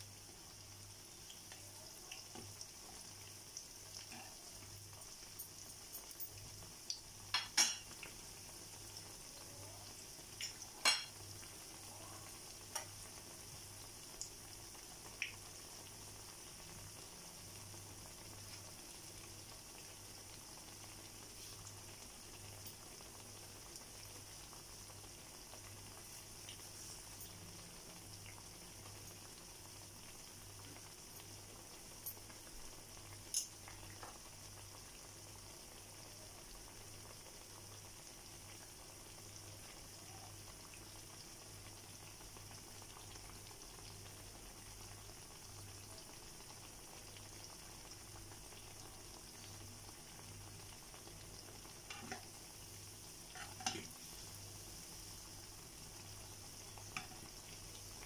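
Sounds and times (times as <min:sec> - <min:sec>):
oil sizzling in a pan: 0:00.0 - 0:58.0.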